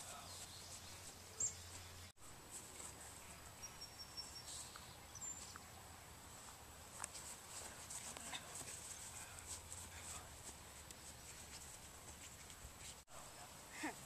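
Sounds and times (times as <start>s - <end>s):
low steady hiss: 0.0s - 14.0s
faint bird chirps: 3.5s - 5.8s.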